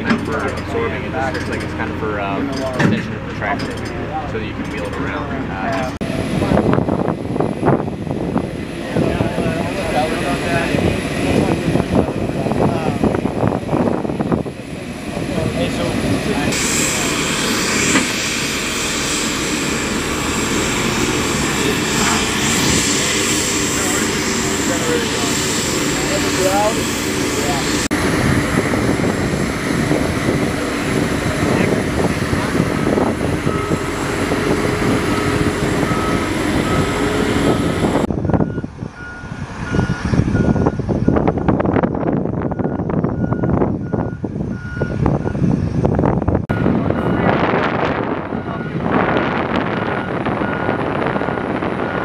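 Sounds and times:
turbine engine running: 0.0s - 52.0s
reversing alarm beeping: 32.4s - 41.2s, 42.5s - 45.4s, 46.5s - 47.4s, 48.1s - 52.0s.

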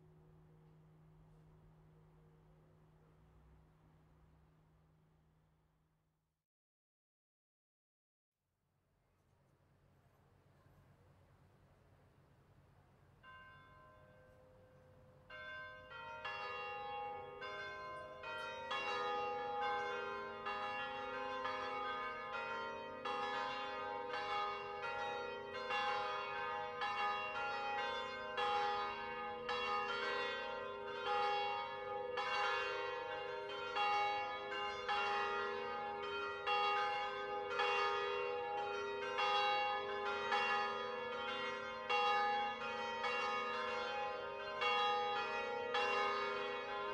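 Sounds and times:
church bells ringing: 13.2s - 46.9s.

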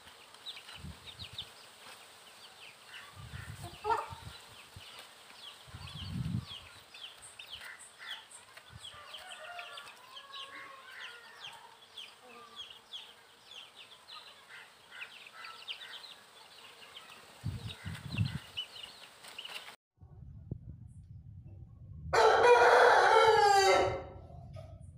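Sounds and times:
small birds chirping: 0.0s - 19.8s
chicken clucks: 3.5s - 4.2s.

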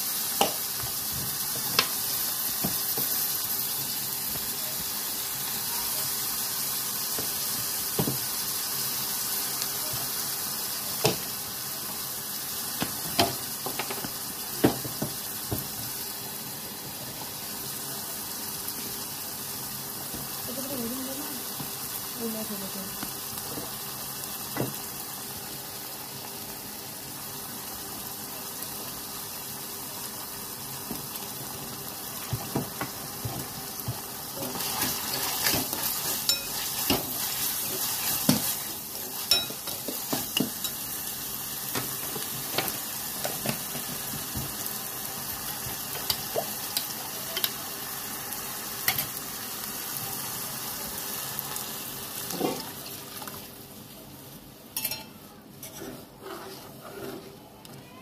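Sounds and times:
vegetables sizzling in pan: 0.0s - 57.3s
ladle scraping metal pan: 55.6s - 57.4s.

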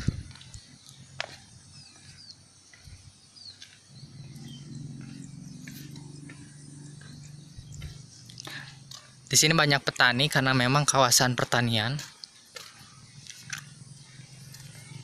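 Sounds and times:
low engine hum: 0.0s - 9.4s, 12.6s - 15.0s
bird chirps: 0.0s - 15.0s.

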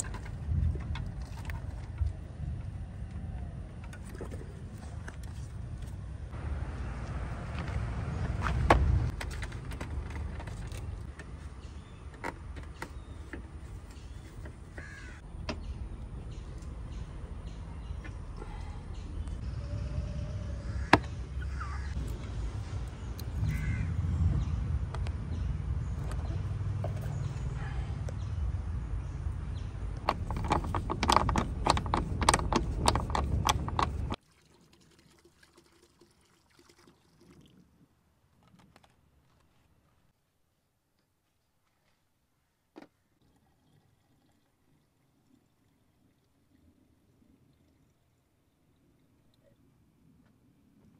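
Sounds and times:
steady low rumble: 15.2s - 34.2s
socket wrench clicking: 30.1s - 34.2s
liquid pouring into plastic bucket: 34.2s - 37.8s.

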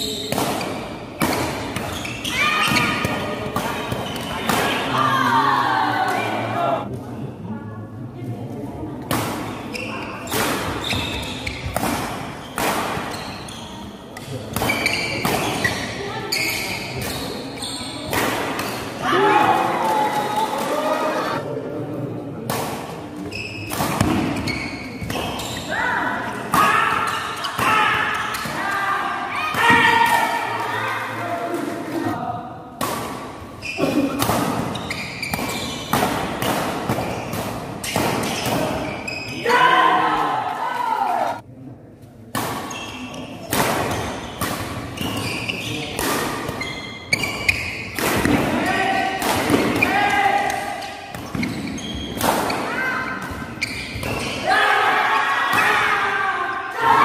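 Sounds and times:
spectators' voices: 0.0s - 11.6s, 14.0s - 23.4s
crowd noise: 0.0s - 57.0s
shoe squeaks on court: 1.9s - 3.0s, 9.5s - 11.8s, 12.4s - 18.8s, 23.2s - 25.7s, 34.7s - 35.9s, 37.0s - 39.4s, 42.7s - 44.4s, 45.0s - 45.9s, 46.6s - 48.0s, 50.8s - 52.2s, 53.6s - 54.4s.

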